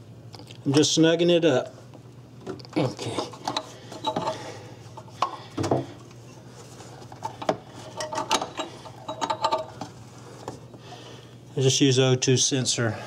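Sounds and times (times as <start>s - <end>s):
metal tools clicking and clinking: 7.4s - 9.7s.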